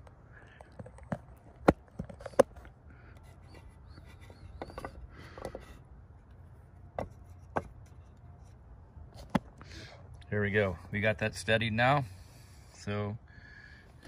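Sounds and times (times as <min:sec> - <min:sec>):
hub scraping on boards: 0:02.0 - 0:05.9, 0:06.8 - 0:08.6.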